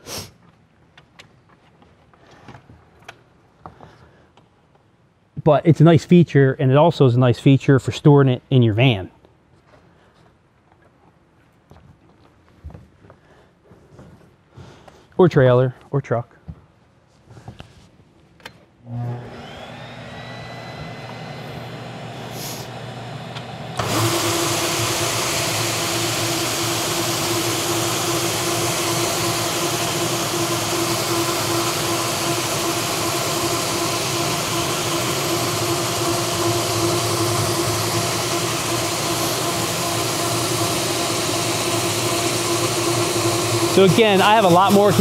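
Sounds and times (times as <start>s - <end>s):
floor sander humming: 18.8s - 45.0s.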